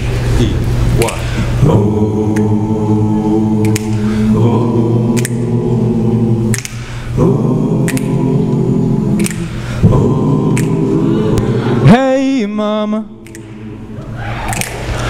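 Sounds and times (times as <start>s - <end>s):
vocal percussion snare hits: 1.0s - 2.6s, 3.6s - 5.7s, 6.4s - 11.4s, 13.2s - 15.0s
male group singing chords: 1.1s - 15.0s.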